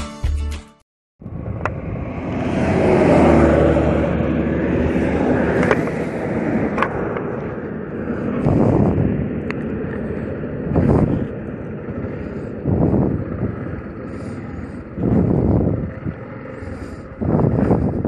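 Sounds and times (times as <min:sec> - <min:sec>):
motorcycle engine drone: 0:01.2 - 0:18.0
wind buffeting microphone: 0:01.2 - 0:18.0.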